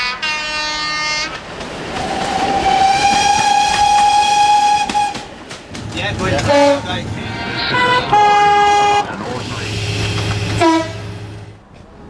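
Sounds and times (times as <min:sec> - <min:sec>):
train horn: 0:00.0 - 0:01.4, 0:02.5 - 0:05.3, 0:06.4 - 0:09.1, 0:09.8 - 0:11.3
train rumbling on rails: 0:00.0 - 0:12.0.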